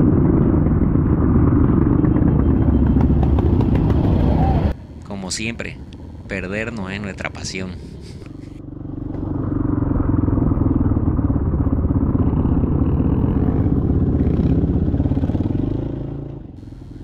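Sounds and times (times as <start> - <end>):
dirt bike engine under throttle: 0.0 - 4.7, 7.9 - 17.0.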